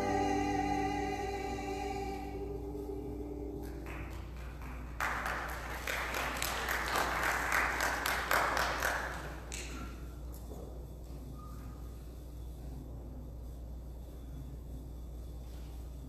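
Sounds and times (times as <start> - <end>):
organ note: 0.0 - 4.0
congregation applauding: 3.6 - 9.8.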